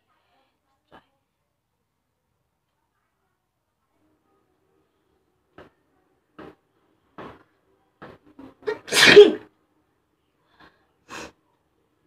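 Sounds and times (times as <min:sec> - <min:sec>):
woman sneezing: 0:08.7 - 0:09.5.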